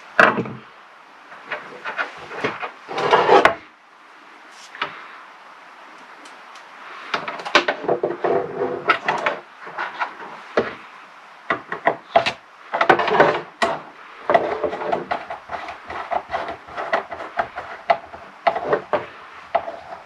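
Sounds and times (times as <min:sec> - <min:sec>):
cables bumping wooden desk: 0:11.5 - 0:20.0.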